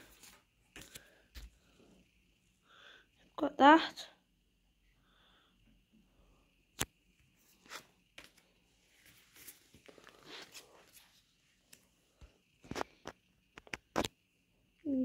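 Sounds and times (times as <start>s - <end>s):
cards rustling and sliding: 7.5s - 11.2s.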